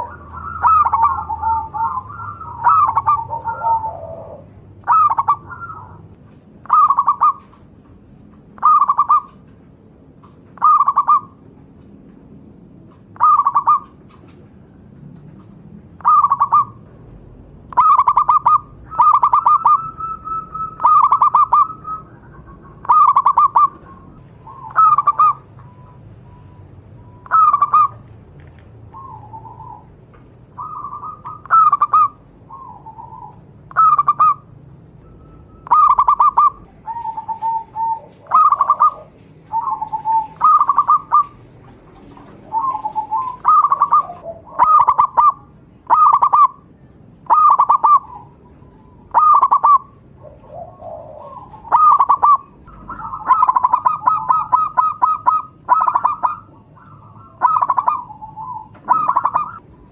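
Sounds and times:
dove cooing: 0:00.0 - 0:12.1, 0:12.8 - 0:16.9, 0:17.6 - 0:28.1, 0:28.8 - 0:59.9.

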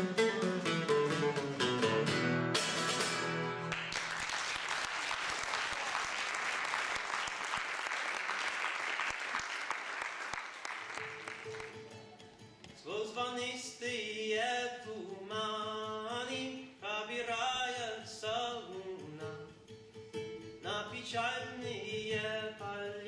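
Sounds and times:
classical guitar plucking: 0:00.0 - 0:03.8, 0:11.0 - 0:23.0
audience applause: 0:03.6 - 0:11.9.

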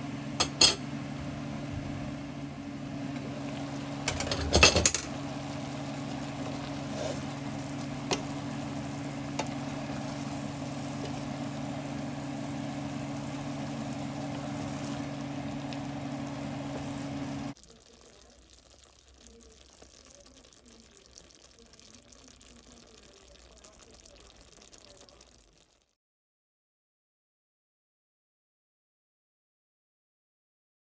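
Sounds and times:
low hum: 0:00.0 - 0:17.6
vegetables simmering and sizzling: 0:00.0 - 0:26.0.

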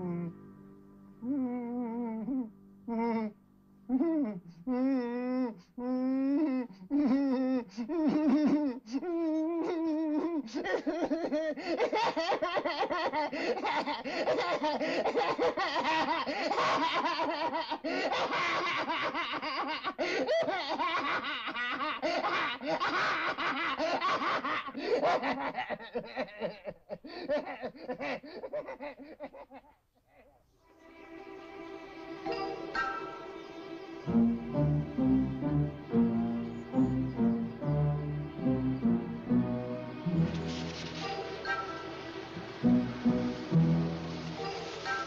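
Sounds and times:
man laughing: 0:02.1 - 0:30.4.

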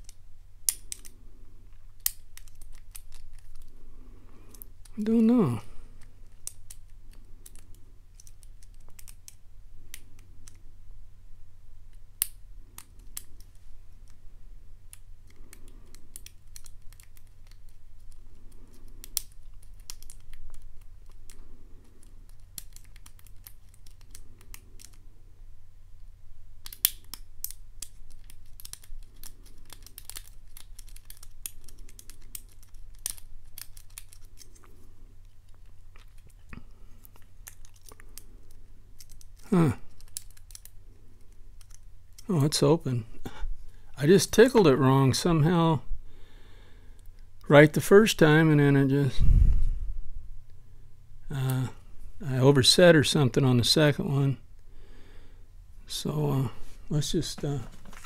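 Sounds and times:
steady low hum: 0:00.0 - 0:58.0
lock pick clicking on pins: 0:26.6 - 0:34.6.

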